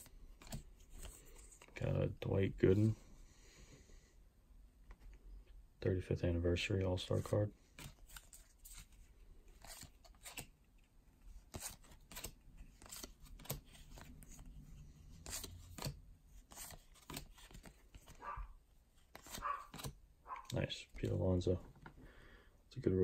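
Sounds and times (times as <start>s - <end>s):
trading cards being flipped: 0.3s - 1.8s, 7.8s - 10.5s, 11.4s - 18.3s, 19.0s - 20.6s.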